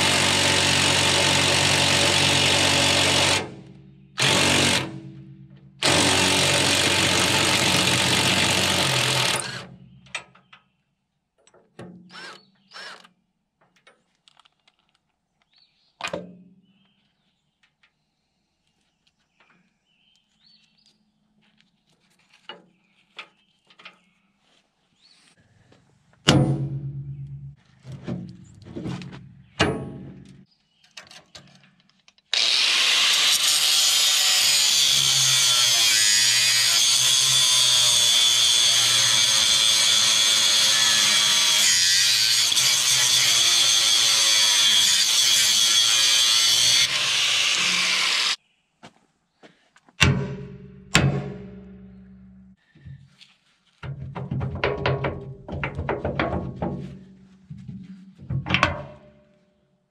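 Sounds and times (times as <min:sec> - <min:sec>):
angle grinder cutting steel: 0:00.0 - 0:03.5, 0:04.2 - 0:05.0, 0:05.8 - 0:09.7, 0:32.3 - 0:48.4
loud metallic knocks: 0:26.3 - 0:27.6, 0:29.6 - 0:30.4, 0:50.0 - 0:52.4, 0:53.9 - 0:59.2.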